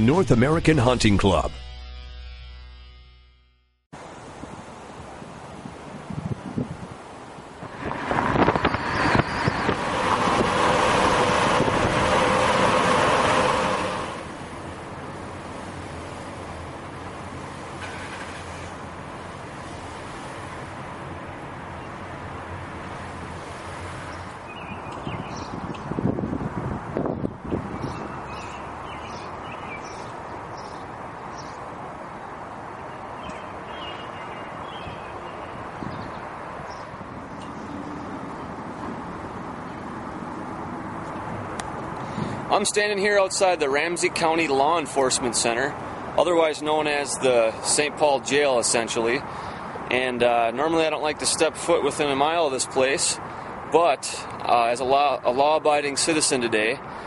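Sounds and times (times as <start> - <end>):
outdoor background noise: 3.9 - 57.0
tyre and wind rush: 4.0 - 15.8, 22.8 - 42.9
small birds chirping: 8.4 - 9.8, 24.1 - 26.0, 27.3 - 38.7.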